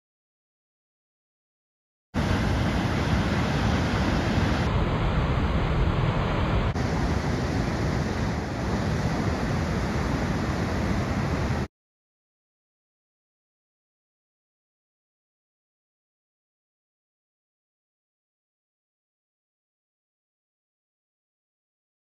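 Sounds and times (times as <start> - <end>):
ocean surf rushing: 2.2 - 11.7
wind buffeting microphone: 2.2 - 11.7.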